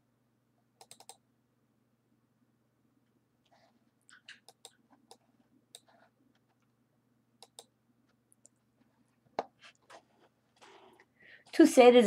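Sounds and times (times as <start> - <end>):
faint low hum: 0.0 - 12.0
computer mouse clicks: 0.8 - 1.2, 4.1 - 6.0, 7.4 - 7.7.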